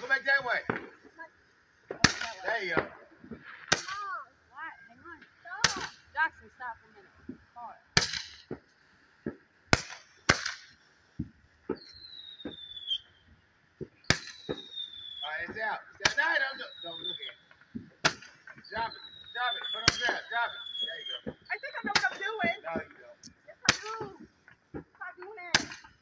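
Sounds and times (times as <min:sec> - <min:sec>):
fireworks bangs: 0:00.0 - 0:26.0
fireworks pops: 0:00.0 - 0:26.0
falling firework whistle: 0:08.0 - 0:23.1.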